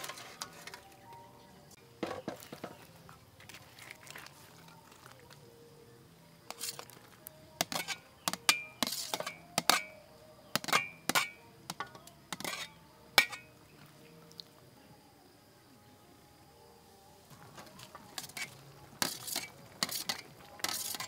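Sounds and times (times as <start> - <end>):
ladle scraping metal bowl: 0.0 - 1.0, 6.5 - 7.0, 7.6 - 10.0, 10.6 - 13.5, 18.1 - 21.0
soft background music: 0.0 - 21.0.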